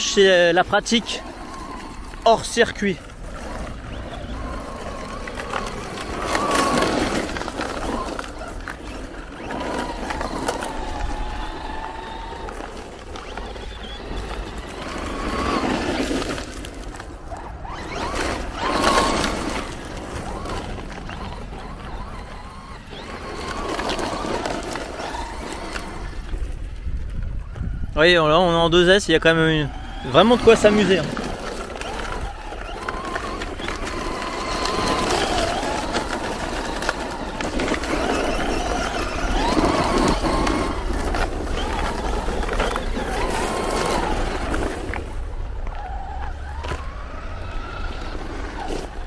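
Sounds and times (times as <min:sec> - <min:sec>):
gravel crunching under tyres: 0:00.0 - 0:49.0
rc truck motor whining: 0:00.0 - 0:49.0.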